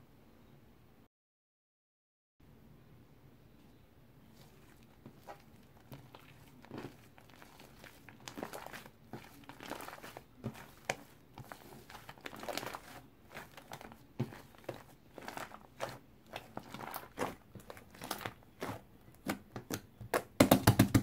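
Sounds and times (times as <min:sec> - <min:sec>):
slime crackling and squishing: 0:04.2 - 0:20.4.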